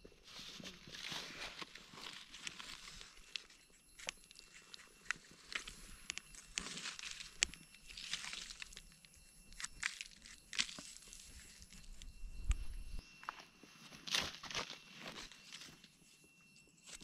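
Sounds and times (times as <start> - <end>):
dry leaves rustling: 0.2 - 12.0
knife scraping mushrooms: 1.2 - 8.8.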